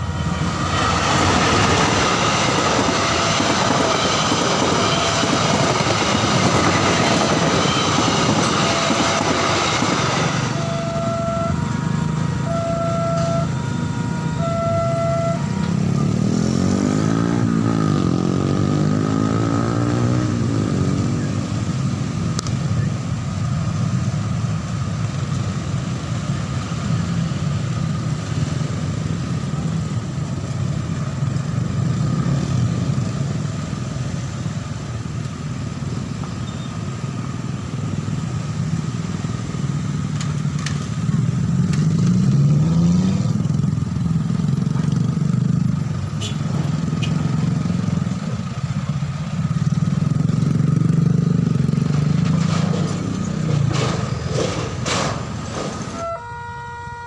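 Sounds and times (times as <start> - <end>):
steady high-pitched tone: 0.0 - 16.2
motorcycle engines revving: 0.0 - 23.1, 35.8 - 56.5.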